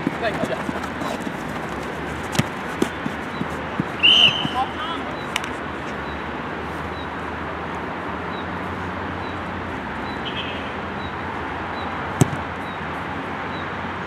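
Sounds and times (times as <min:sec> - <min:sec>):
outdoor background noise: 0:00.0 - 0:14.0
football being kicked: 0:02.3 - 0:04.7, 0:12.2 - 0:12.5.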